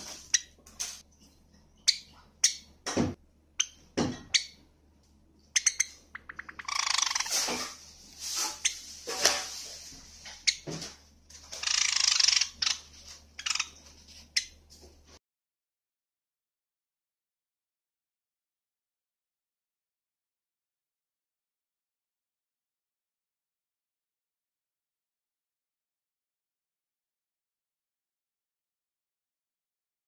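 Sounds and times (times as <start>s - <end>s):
sparrow chirping and warbling: 5.5s - 7.3s, 11.6s - 12.8s, 13.4s - 13.8s.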